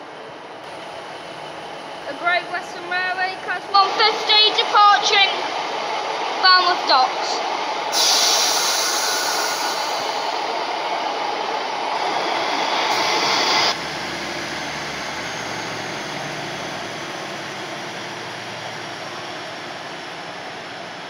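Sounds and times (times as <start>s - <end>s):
train diesel engine idling: 0.0s - 21.0s
loud hiss: 7.9s - 10.8s, 11.8s - 13.8s.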